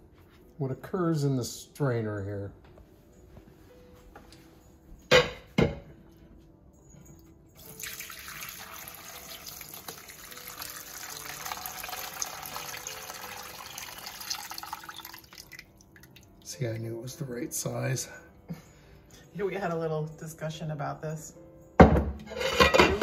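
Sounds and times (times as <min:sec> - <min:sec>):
broth pouring through strainer: 0:07.6 - 0:16.6.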